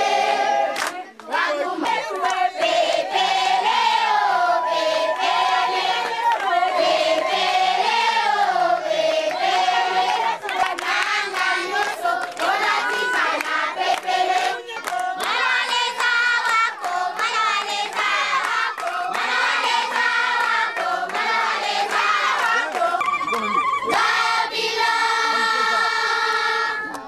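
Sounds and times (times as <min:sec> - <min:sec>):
children and women singing: 0:00.0 - 0:27.0
hand clapping: 0:00.8 - 0:02.8, 0:10.0 - 0:23.8.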